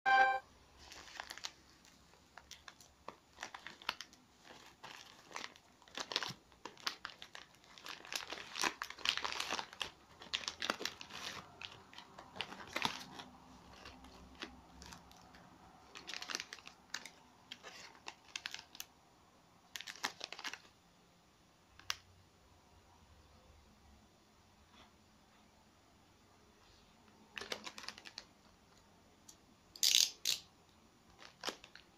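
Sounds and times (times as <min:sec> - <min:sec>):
packaging crinkling and rustling: 0:00.8 - 0:18.9, 0:19.7 - 0:20.8, 0:27.3 - 0:28.8, 0:31.1 - 0:31.9.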